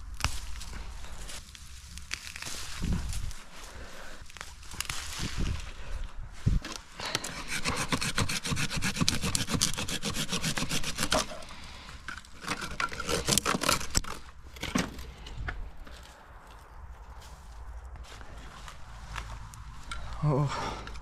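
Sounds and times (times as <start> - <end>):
twig snapping: 0.0 - 3.5, 4.1 - 5.6
dry twigs scraping and crackling: 0.0 - 21.0.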